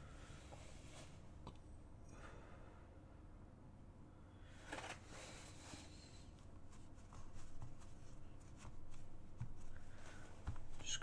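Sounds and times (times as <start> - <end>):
paintbrush rustling on canvas: 5.6 - 11.0.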